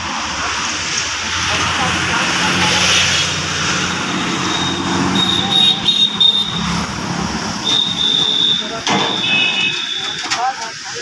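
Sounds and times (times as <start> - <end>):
traffic and engine hum: 0.0 - 11.0
thin high whistle-like tone: 7.6 - 10.3.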